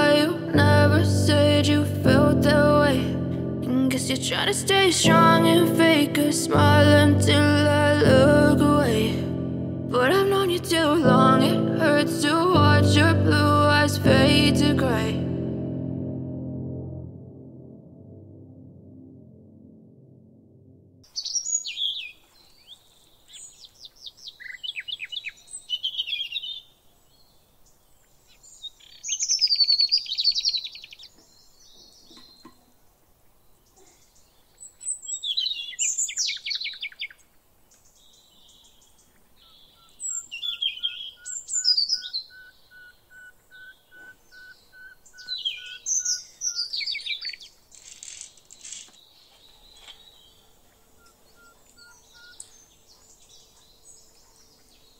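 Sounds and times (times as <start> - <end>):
songbirds chirping and trilling: 21.0 - 54.9.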